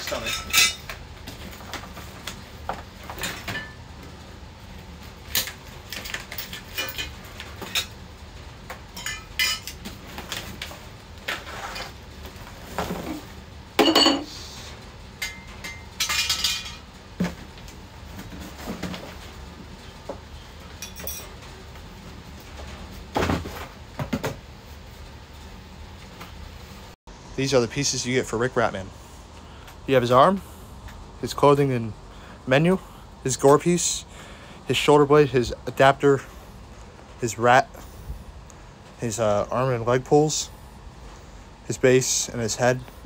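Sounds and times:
scraping rustling noises: 9.8 - 13.4.

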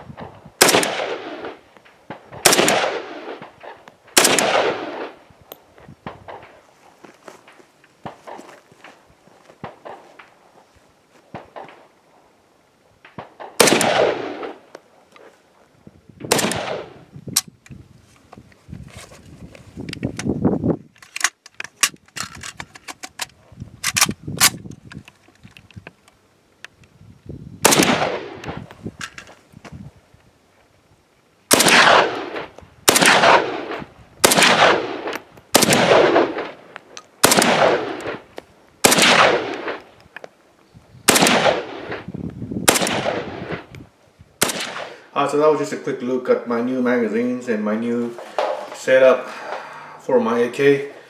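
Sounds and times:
rifle shots echoing: 0.6 - 5.2, 13.0 - 14.7, 16.3 - 17.1, 27.6 - 28.6, 31.5 - 39.9, 41.1 - 43.7, 44.4 - 45.1.

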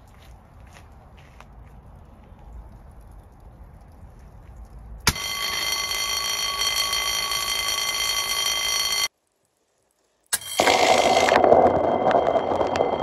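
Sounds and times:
alarm bell ringing: 5.1 - 9.1, 10.4 - 13.0.

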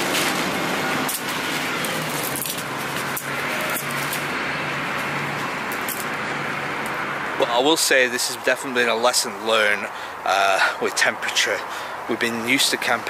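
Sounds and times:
road traffic noise: 0.0 - 13.0
gear handling clicks and rustles: 1.1 - 4.2.

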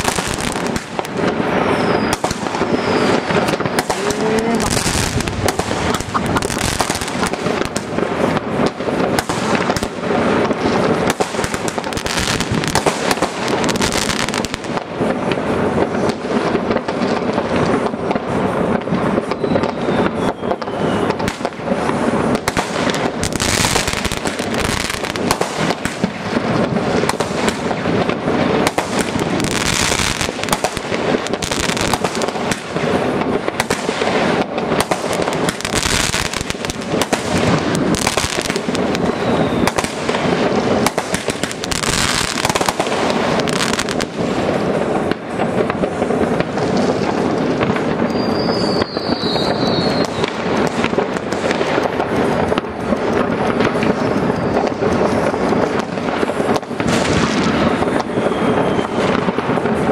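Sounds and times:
high firework whistle: 0.0 - 8.5, 18.9 - 27.7, 33.5 - 59.9
fireworks bangs and crackles: 0.0 - 59.9
rocket hiss: 0.0 - 59.9.

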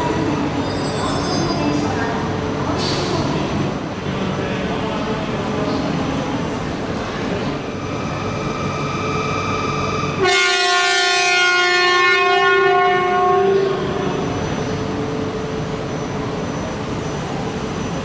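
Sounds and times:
train horn blast: 10.1 - 14.0.

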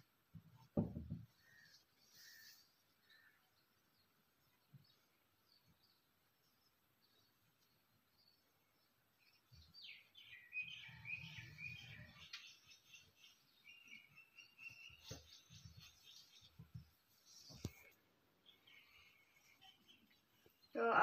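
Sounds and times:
faint birds chirping: 0.0 - 21.0.

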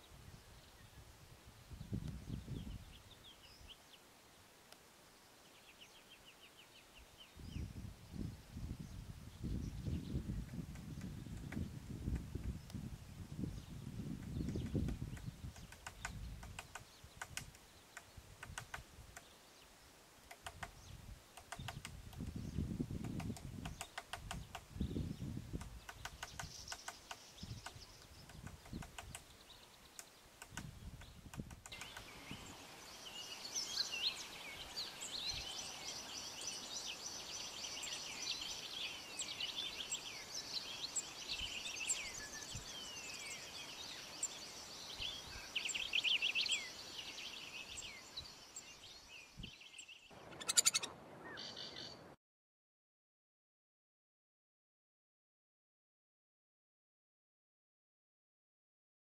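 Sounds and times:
small birds chirping: 5.2 - 52.0
woodpecker tapping on wood: 10.4 - 12.6, 14.1 - 19.3, 20.2 - 24.7, 25.5 - 32.1.

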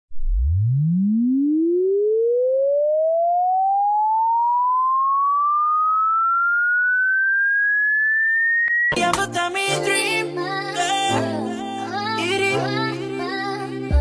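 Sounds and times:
sine tone sweeping upward: 0.1 - 9.0.

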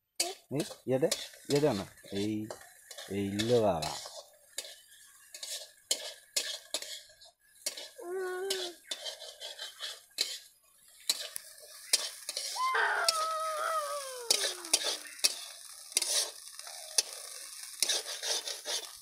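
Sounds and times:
metal spoon scraping metal pan: 0.2 - 10.5, 11.1 - 13.2, 14.3 - 16.4, 17.0 - 19.0.

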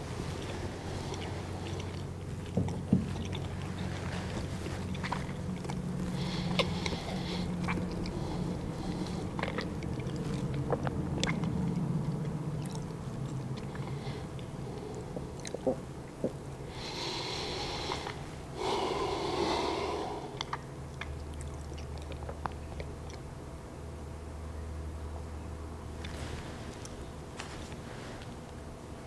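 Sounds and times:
man breathing: 16.7 - 20.4
mouth clicks: 20.0 - 23.2.

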